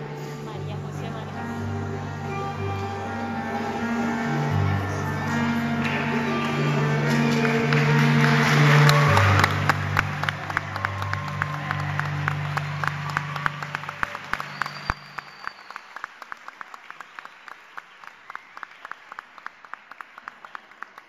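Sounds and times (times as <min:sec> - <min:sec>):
electronic keyboard chord: 0:00.0 - 0:14.4
audience applause: 0:01.0 - 0:21.0.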